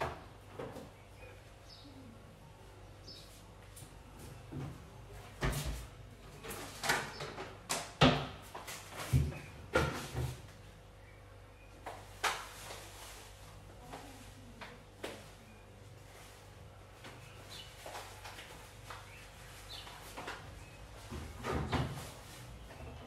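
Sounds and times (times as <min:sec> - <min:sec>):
laundry knocks and thumps in washer: 0:04.3 - 0:10.5, 0:20.0 - 0:23.0.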